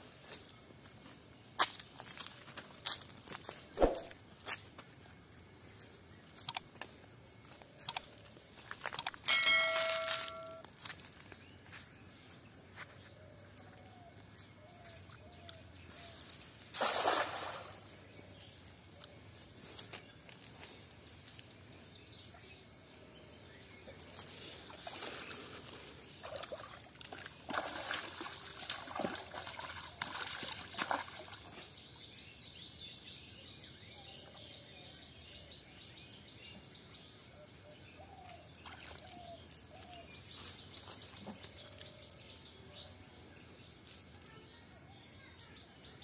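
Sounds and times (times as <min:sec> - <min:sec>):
water splashing and sloshing: 0:16.6 - 0:18.0, 0:26.1 - 0:31.9
net splashing onto water: 0:16.7 - 0:17.9, 0:26.2 - 0:31.6.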